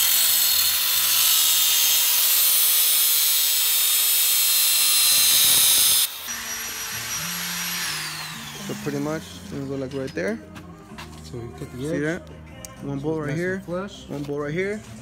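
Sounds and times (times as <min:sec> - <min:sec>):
angle grinder cutting metal: 0:00.0 - 0:10.2.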